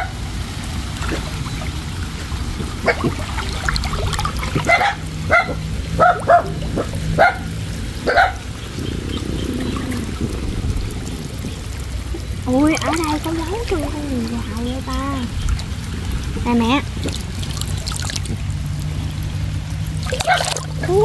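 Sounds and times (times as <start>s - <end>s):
water sloshing as person wades: 0.4s - 21.0s
dog barking: 4.6s - 8.5s, 20.1s - 20.6s.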